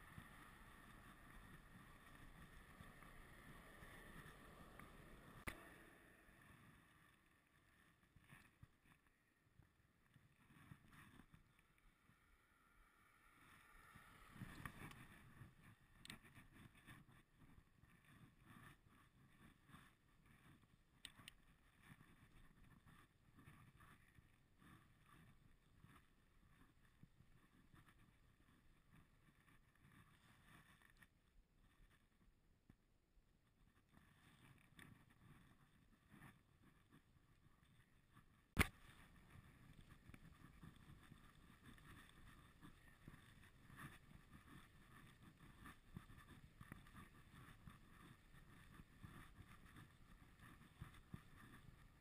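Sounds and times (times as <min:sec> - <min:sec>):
bicycle tyres and wind rumble: 0:00.0 - 0:32.2, 0:33.6 - 0:52.0
sharp click: 0:38.6 - 0:38.8.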